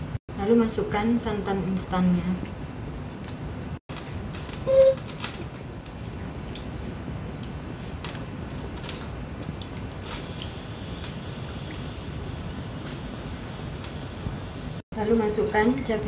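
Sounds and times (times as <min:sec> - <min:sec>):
short loud tone: 0:04.7 - 0:05.0.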